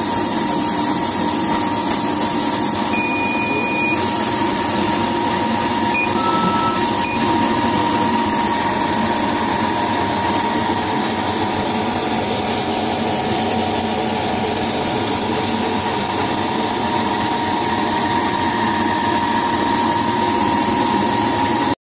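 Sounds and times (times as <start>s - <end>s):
laser cutting machine whirring: 0.0s - 21.7s
short higher tones: 6.0s - 7.4s.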